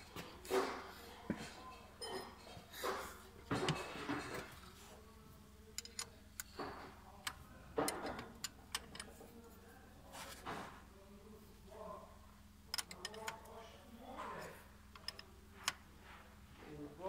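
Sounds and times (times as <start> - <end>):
faint steady hum: 0.0 - 17.0
soft brushing: 9.2 - 10.9.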